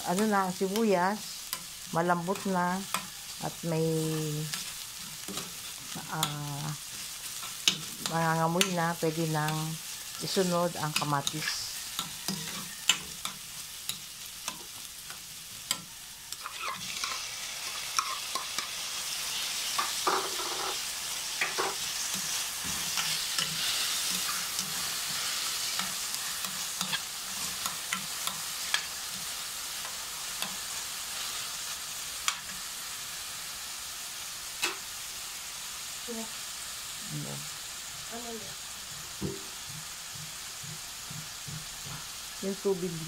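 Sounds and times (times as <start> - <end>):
food sizzling in oil: 0.0 - 43.0
metal spatula scraping pan: 9.8 - 13.4, 15.7 - 18.6, 19.9 - 20.8, 21.4 - 28.9.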